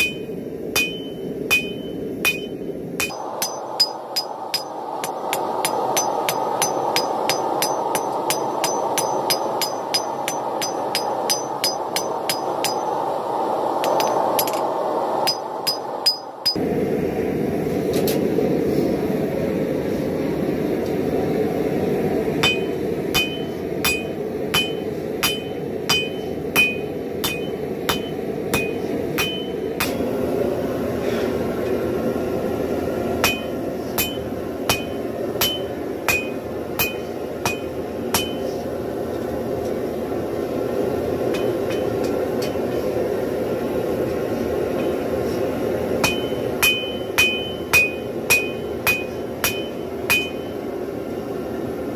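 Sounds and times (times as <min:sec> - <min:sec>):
anvil ringing: 0:00.0 - 0:12.9, 0:15.3 - 0:16.6, 0:22.4 - 0:30.0, 0:33.2 - 0:38.4, 0:46.0 - 0:50.6
hammer striking steel on anvil: 0:00.0 - 0:13.0, 0:13.8 - 0:16.6, 0:22.4 - 0:30.0, 0:33.2 - 0:38.5, 0:41.3 - 0:42.8, 0:46.0 - 0:50.6
steady rushing noise: 0:00.0 - 0:51.9.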